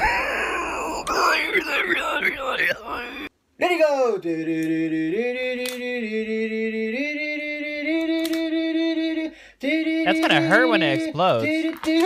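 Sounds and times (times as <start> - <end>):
person singing long notes: 4.3 - 12.0.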